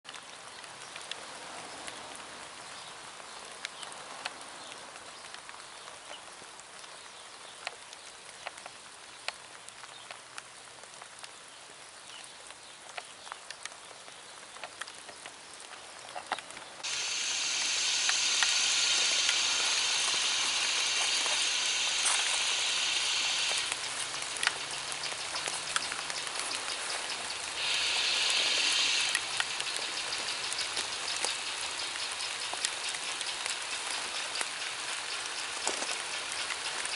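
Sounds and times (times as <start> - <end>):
rain falling: 0.0 - 36.9
water drips: 5.1 - 36.9
steam locomotive hissing: 16.8 - 25.5, 26.2 - 36.9.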